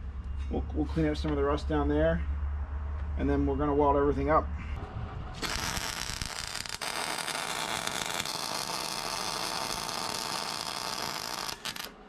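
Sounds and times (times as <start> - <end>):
welding arc hissing: 5.4 - 12.0.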